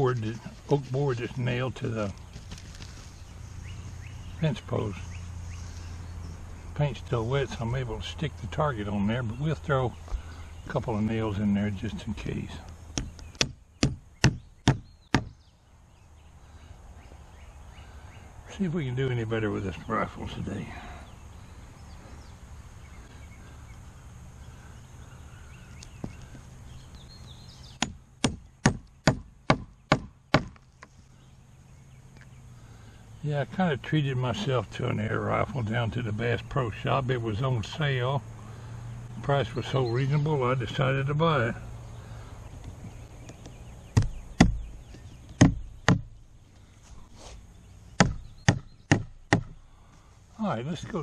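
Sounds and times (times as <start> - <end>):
hammer driving a nail into wood: 13.0 - 15.3, 27.8 - 30.6, 48.0 - 49.6.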